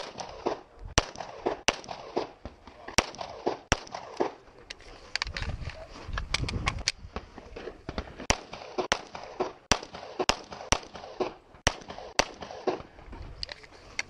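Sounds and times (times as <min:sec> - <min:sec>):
pistol shots: 0:00.0 - 0:04.4, 0:07.8 - 0:12.9.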